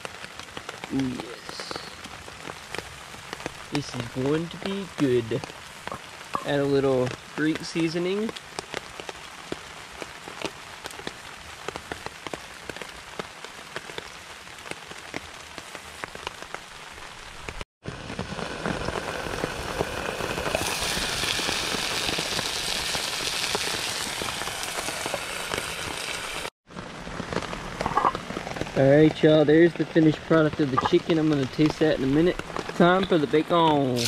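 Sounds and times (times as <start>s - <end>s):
chicken sizzling in a pan: 18.3s - 26.5s.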